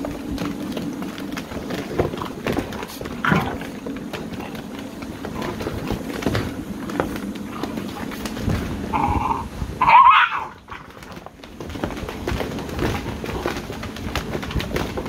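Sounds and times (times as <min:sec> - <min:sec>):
claws scuffling on plastic: 0:00.0 - 0:15.0
puppy wavering yelp: 0:08.9 - 0:10.6
puppy yip: 0:09.8 - 0:10.5.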